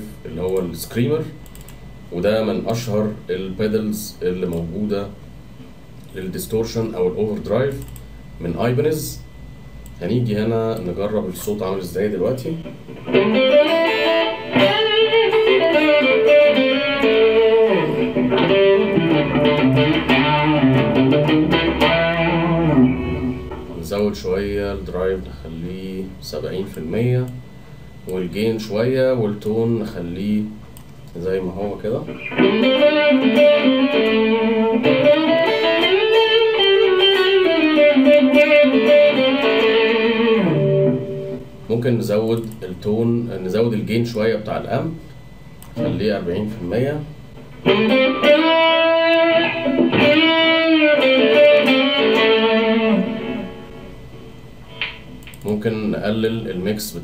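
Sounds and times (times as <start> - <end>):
overdriven electric guitar lead: 12.6 - 23.8, 32.0 - 41.5, 47.5 - 55.4.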